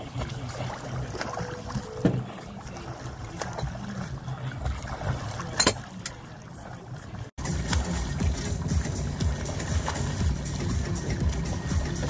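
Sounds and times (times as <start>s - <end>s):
boat engine low rumble: 0.0s - 12.0s
swimming strokes splashing: 0.0s - 12.0s
water noise: 0.0s - 12.0s.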